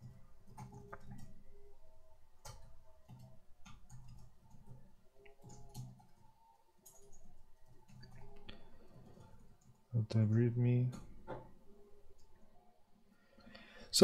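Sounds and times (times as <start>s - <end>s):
keyboard typing clicks: 0.0s - 1.4s, 2.4s - 9.8s.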